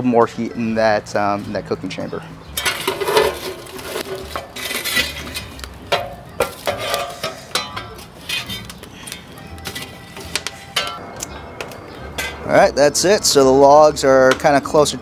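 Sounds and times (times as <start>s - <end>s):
shovel clanking against metal firebox: 2.5s - 12.6s.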